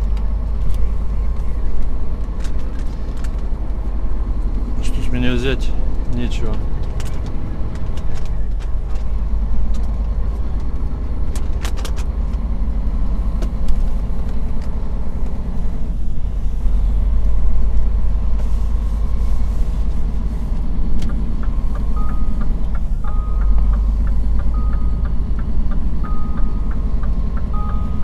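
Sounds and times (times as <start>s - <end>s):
truck engine and tyre drone: 0.0s - 28.0s
short beep-like tones: 21.9s - 23.8s, 24.5s - 25.2s, 26.0s - 26.8s, 27.4s - 28.0s.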